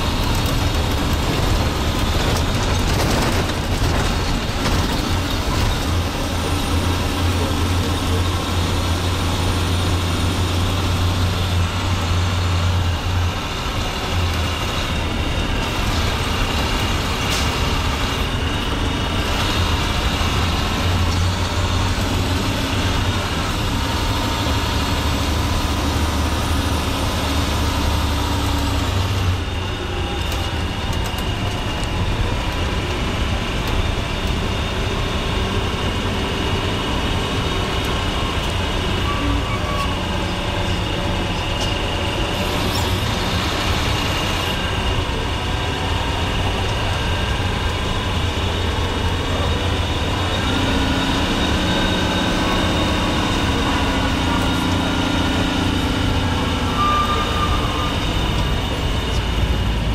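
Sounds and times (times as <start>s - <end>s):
tyres rolling on gravel: 0.0s - 24.0s
bus engine running: 0.0s - 59.9s.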